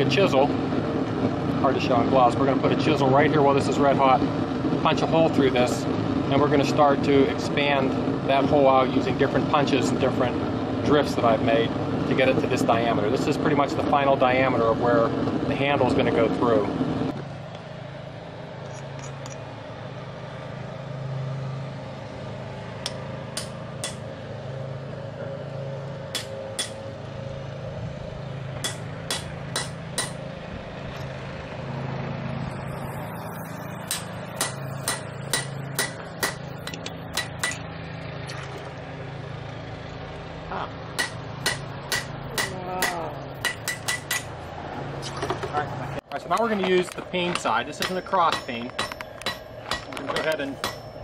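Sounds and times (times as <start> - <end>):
low hum: 0.0 - 51.0
hammer striking chisel on anvil: 22.8 - 24.1, 26.1 - 26.8, 28.6 - 30.2, 33.9 - 37.6, 41.0 - 44.4, 46.7 - 51.0.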